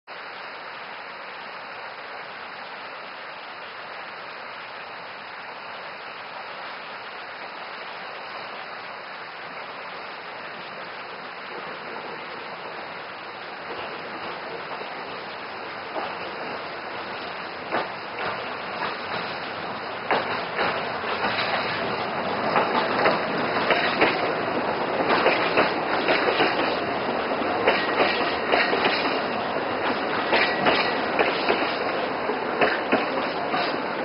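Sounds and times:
stream rushing: 0.1 - 34.0
sharp knocks of locomotive: 20.1 - 21.8, 22.5 - 24.3, 25.0 - 26.8, 27.6 - 29.2, 29.8 - 31.9, 32.6 - 33.8.

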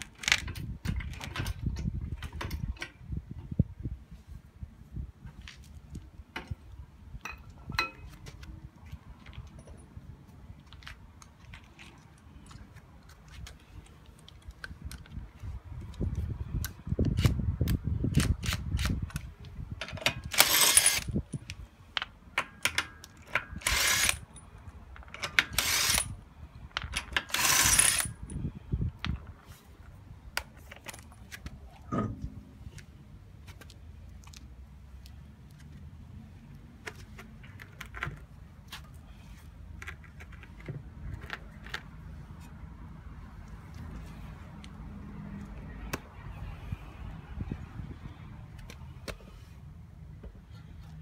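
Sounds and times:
impact wrench bursts: 20.2 - 21.2, 23.5 - 24.3, 25.4 - 26.1.

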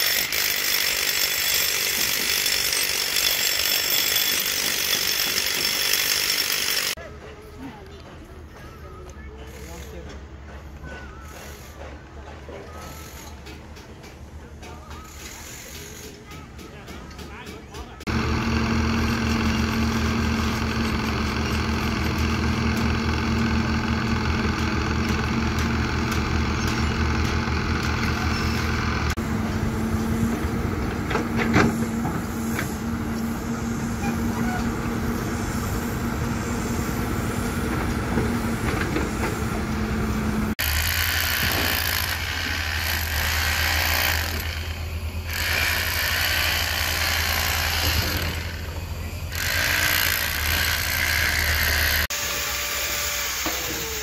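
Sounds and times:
handheld power tool running: 0.0 - 7.0, 18.1 - 29.2, 40.5 - 54.0
excavator diesel engine running: 18.0 - 43.8.

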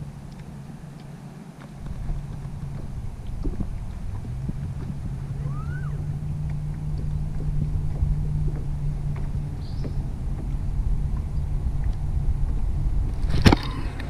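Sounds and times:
steady low hum: 0.0 - 14.0
wind buffeting microphone: 0.0 - 14.0
short rising-falling chirp: 5.4 - 6.0.

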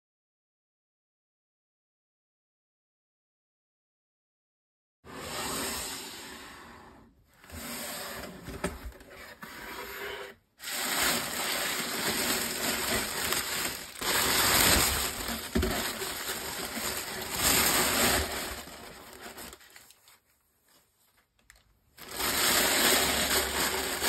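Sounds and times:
tissue paper rustling: 10.6 - 21.3, 22.0 - 24.0.

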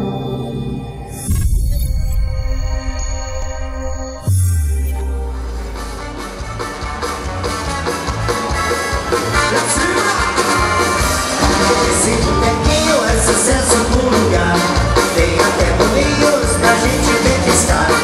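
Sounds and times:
live dance-band music: 0.0 - 18.0
person singing: 11.6 - 18.0.

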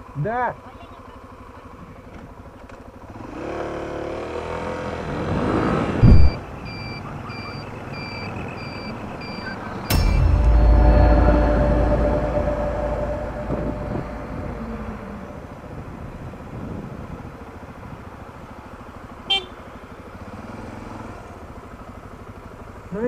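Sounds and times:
motorcycle running: 0.0 - 9.2, 9.8 - 23.0
city traffic: 0.0 - 23.0
vehicle horn: 19.3 - 19.7.

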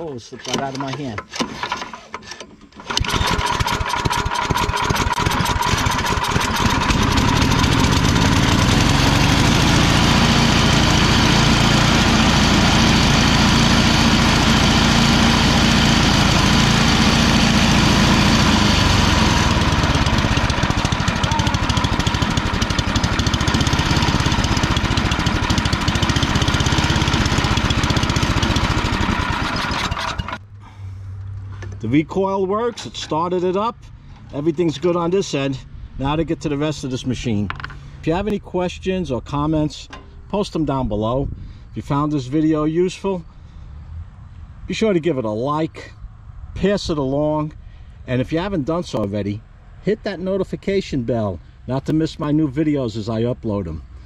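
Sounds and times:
recoil starter pull: 0.4 - 30.4
snowblower engine running: 2.8 - 30.4.

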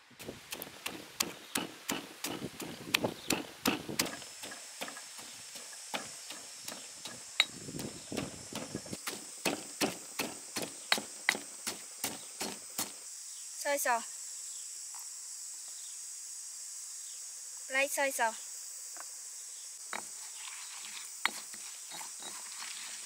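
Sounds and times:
stone pestle pounding in mortar: 0.4 - 12.9.

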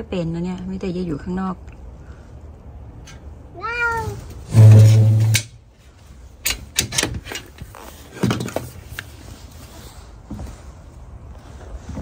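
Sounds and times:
handling clicks and knocks: 6.4 - 9.1.

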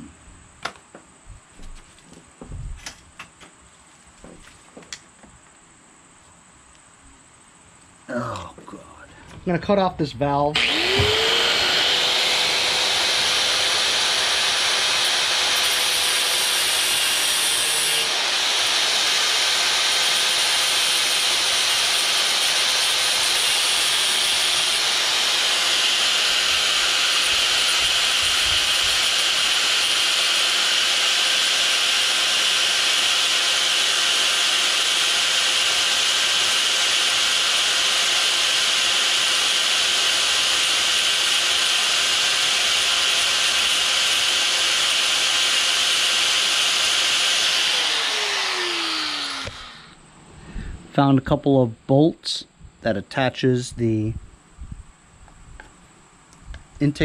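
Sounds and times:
angle grinder cutting metal: 10.6 - 50.0.

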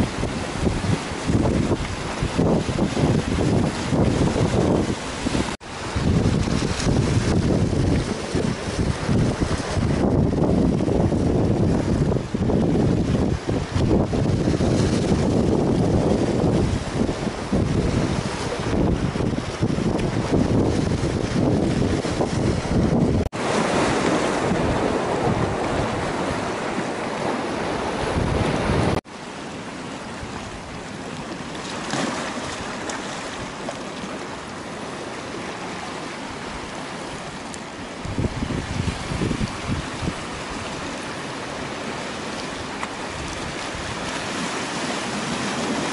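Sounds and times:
wind buffeting microphone: 0.0 - 29.0, 38.0 - 41.2, 42.6 - 45.9
waves on a pebbly shore: 0.0 - 45.9.

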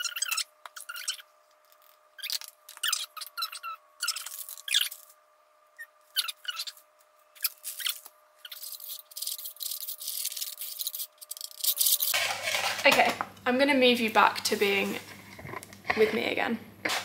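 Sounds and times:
spoon scraping in bowl: 8.5 - 13.0.

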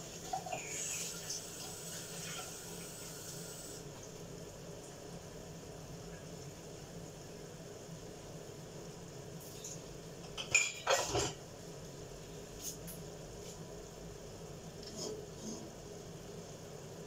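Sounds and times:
cookware clattering: 10.4 - 11.4.

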